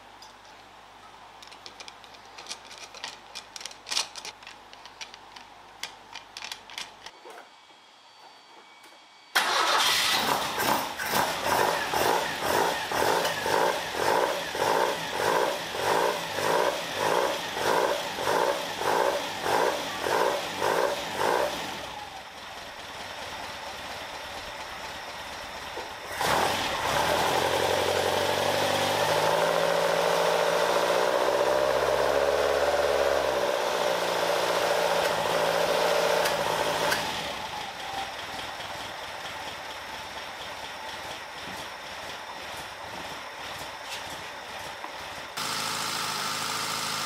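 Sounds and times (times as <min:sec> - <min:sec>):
quiet steady background noise: 0:00.0 - 0:26.1
car engine revving: 0:09.4 - 0:21.8, 0:26.1 - 0:37.2.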